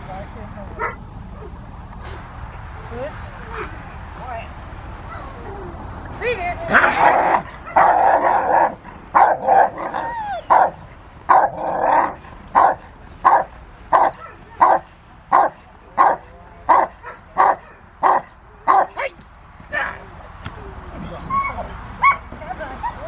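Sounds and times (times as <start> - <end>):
dog barking: 0.8 - 1.0, 6.8 - 19.0, 22.0 - 23.0.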